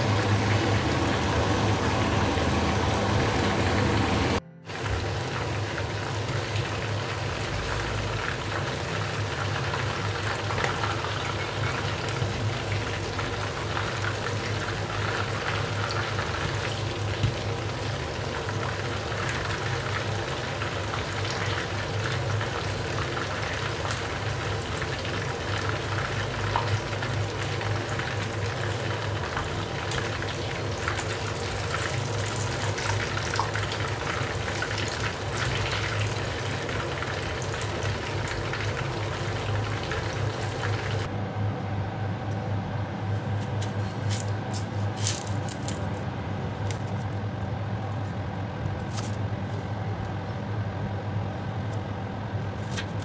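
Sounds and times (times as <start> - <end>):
chicken deep-frying in hot oil: 0.0 - 41.1, 43.0 - 53.0
low steady hum: 0.0 - 53.0.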